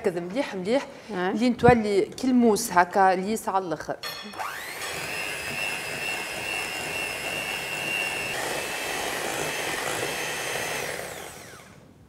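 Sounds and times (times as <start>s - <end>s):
electric mixer whining: 4.4s - 11.8s.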